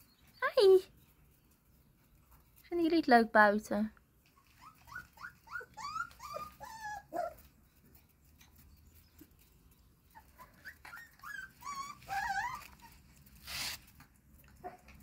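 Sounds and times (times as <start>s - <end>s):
puppies whining and whimpering: 4.3s - 8.0s, 10.0s - 13.6s.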